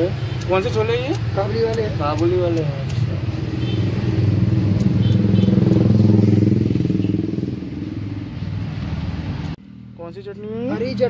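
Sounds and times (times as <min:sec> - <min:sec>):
motorcycle engine passing: 0:03.5 - 0:09.5.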